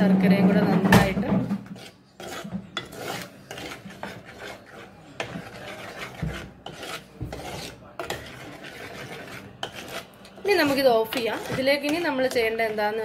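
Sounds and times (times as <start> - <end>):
metal spoon scraping clay pot: 0.2 - 13.0.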